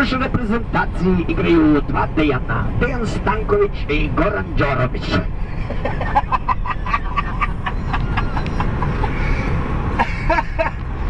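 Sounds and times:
car road and engine noise: 0.0 - 11.0
men laughing: 5.3 - 10.8.

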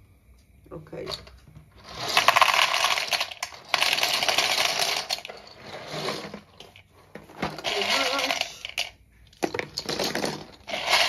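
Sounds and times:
dry pasta pouring into plastic bowl: 10.0 - 11.0.

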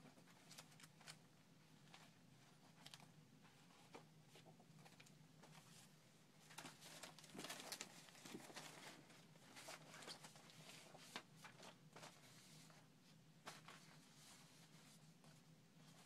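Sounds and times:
paper rustling: 4.8 - 16.0.

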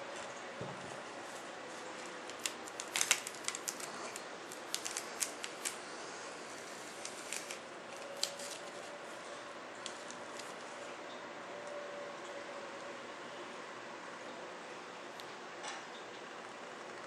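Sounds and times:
plastic film crackling: 0.0 - 10.9.

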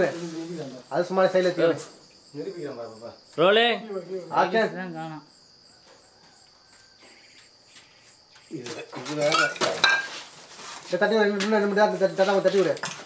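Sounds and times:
crickets chirring: 0.0 - 13.0
glass bottles clinking: 8.7 - 10.2.

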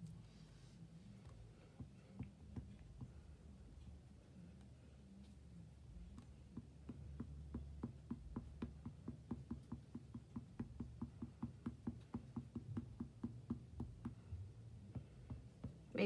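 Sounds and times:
sponge tapping on paper: 1.2 - 3.2, 6.1 - 15.9.

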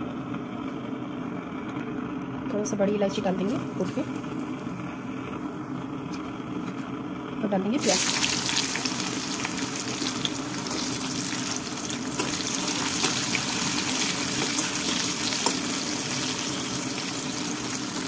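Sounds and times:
onions sizzling in hot oil: 7.8 - 18.0.

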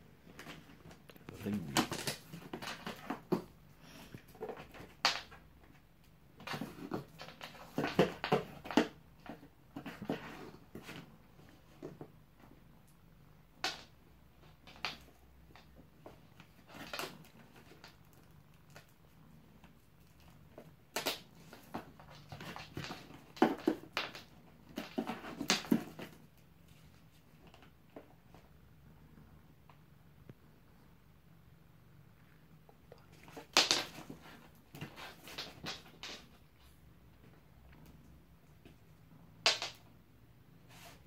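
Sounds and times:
cat rustling cardboard box: 6.3 - 12.0, 20.5 - 28.4.

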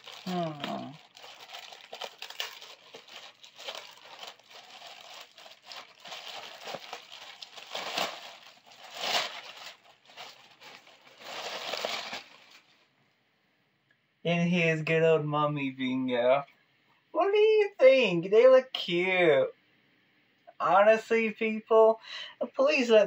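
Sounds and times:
plastic bag crinkling: 0.0 - 12.9.

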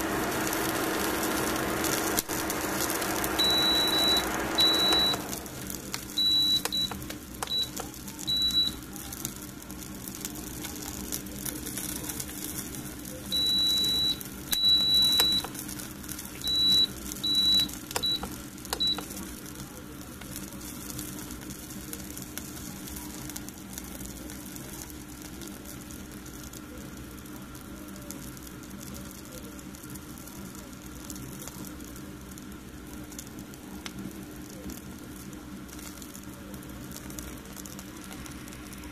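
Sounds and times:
steady background hum: 0.0 - 21.1
electronic beeper beeping: 0.6 - 8.8.

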